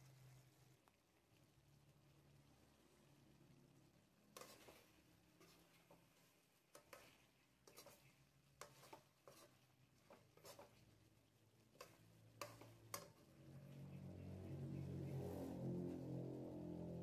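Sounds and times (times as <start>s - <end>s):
metal spoon scraping a wok: 4.3s - 6.1s, 6.8s - 10.8s, 11.7s - 13.8s.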